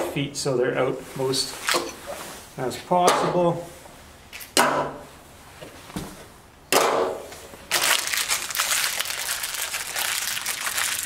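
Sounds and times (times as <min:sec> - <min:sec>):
plastic bag crinkling: 0:07.7 - 0:11.0.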